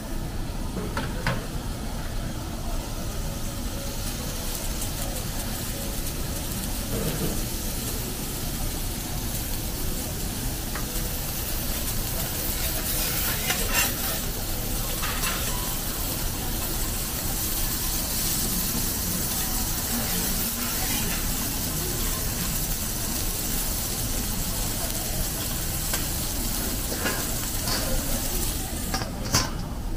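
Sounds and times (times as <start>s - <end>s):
seafood sizzling on a griddle: 0.1s - 29.6s
metal spatulas scraping and tapping: 12.8s - 14.2s.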